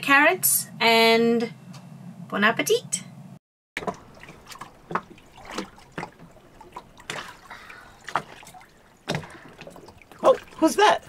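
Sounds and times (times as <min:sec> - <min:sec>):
wavelets lapping against hull: 0:03.8 - 0:11.0.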